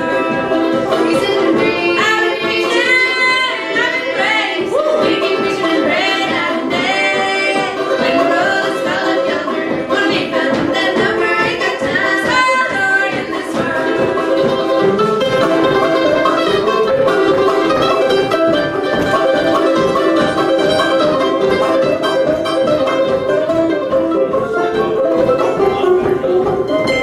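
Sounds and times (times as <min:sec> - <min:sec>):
women singing in harmony: 0:00.0 - 0:14.6
banjo and mandolin: 0:00.0 - 0:27.0.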